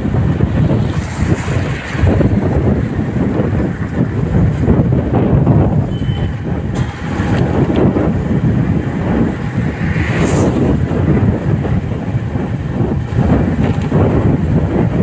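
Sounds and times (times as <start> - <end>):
motorcycle running: 0.0 - 15.0
tyres on wet road: 0.0 - 15.0
wind rushing over microphone: 0.0 - 15.0.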